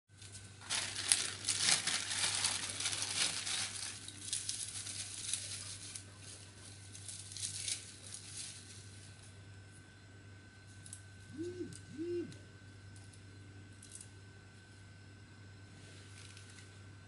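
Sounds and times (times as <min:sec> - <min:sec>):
plastic packaging crinkling: 0:00.1 - 0:09.2.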